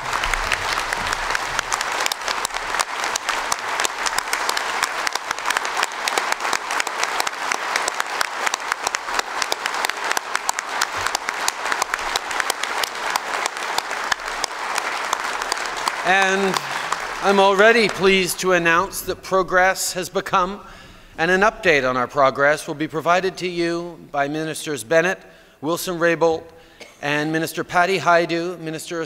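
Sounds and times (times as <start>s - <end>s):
audience applauding: 0.0s - 19.8s.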